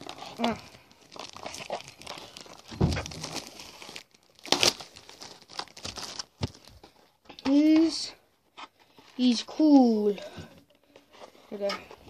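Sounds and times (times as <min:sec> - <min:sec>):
plastic packaging crinkling and tearing: 0:00.0 - 0:07.1
thump: 0:02.7 - 0:03.2.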